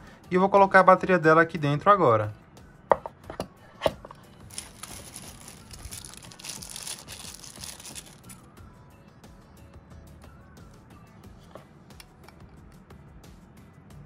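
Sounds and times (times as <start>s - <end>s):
plastic wrapper crinkling and tearing: 4.4s - 8.4s.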